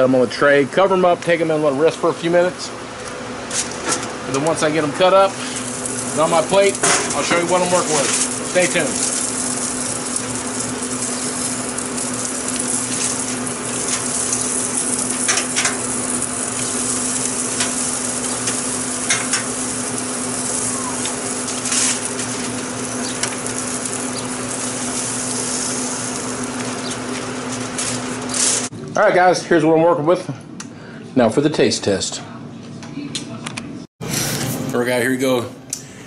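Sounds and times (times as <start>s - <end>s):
meat sizzling on grill: 0.4s - 28.7s.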